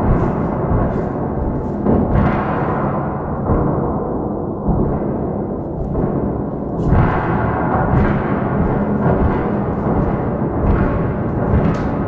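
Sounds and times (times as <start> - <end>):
object swung whooshing: 0.0 - 3.0, 5.7 - 12.0.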